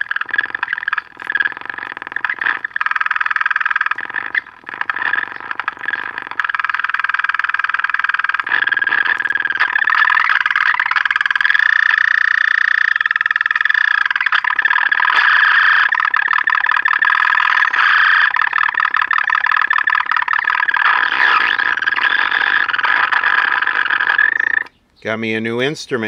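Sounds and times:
radio pulsing buzz: 20.8s - 24.7s.

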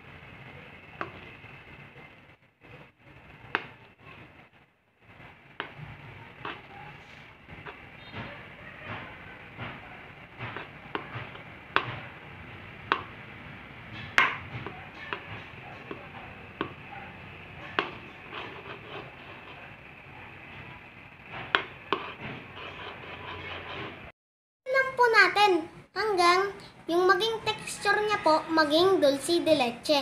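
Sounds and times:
spoon scraping a pan: 5.6s - 8.3s, 17.7s - 20.0s, 21.2s - 24.1s.

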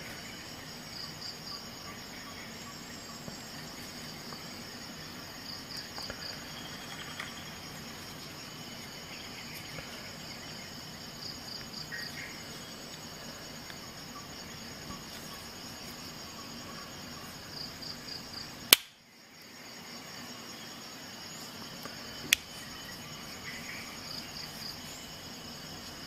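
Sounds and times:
cricket chirping: 0.0s - 26.0s
sharp loud click: 18.7s - 19.0s.

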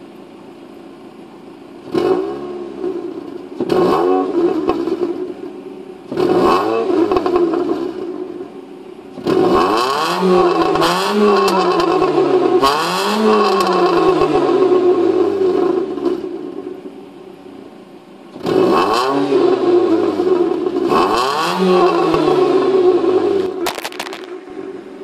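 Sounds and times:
car exhaust revving: 1.8s - 17.0s, 18.3s - 25.0s.

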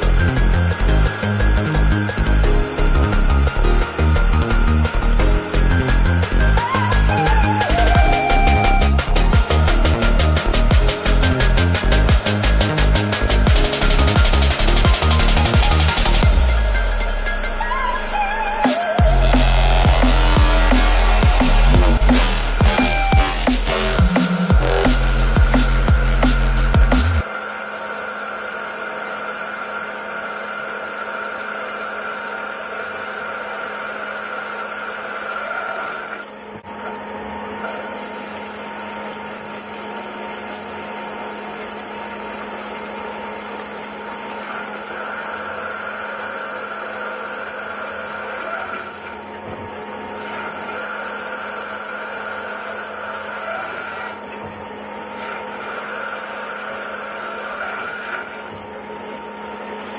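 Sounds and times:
cutting whine: 0.0s - 59.9s
machine humming: 0.0s - 59.9s.

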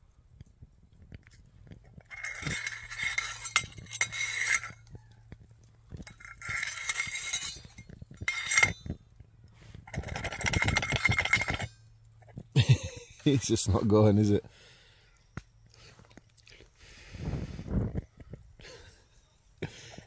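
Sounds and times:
metal lid scraping on stove: 2.0s - 5.0s, 5.9s - 9.0s, 9.8s - 12.4s.

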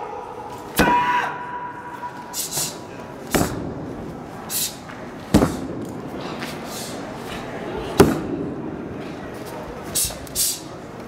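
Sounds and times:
person shouting sharply: 0.0s - 2.5s.

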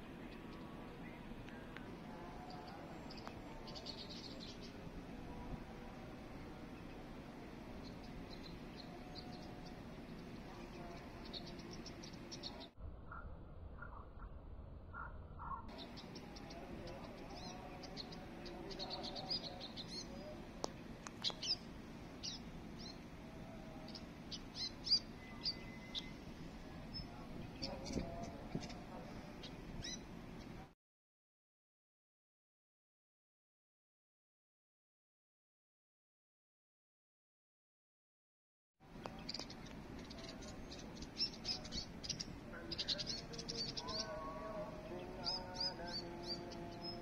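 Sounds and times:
sparrows chirping: 0.0s - 13.2s, 15.0s - 30.7s, 39.0s - 47.0s
steady tonal hum: 0.0s - 14.9s.

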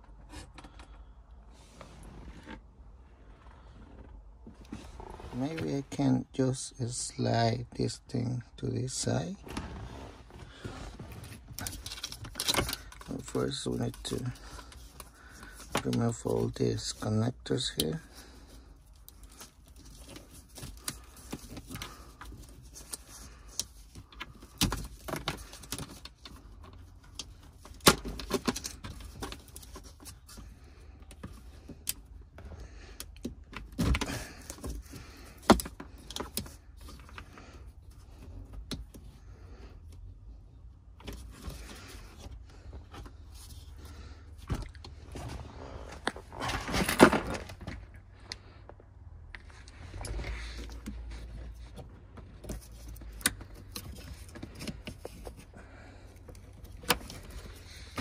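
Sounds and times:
plastic connectors clicking and rattling: 11.5s - 18.1s.

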